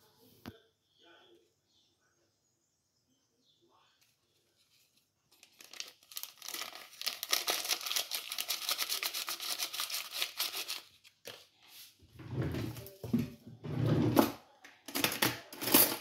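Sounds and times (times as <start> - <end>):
sachet crinkling: 5.3 - 11.6.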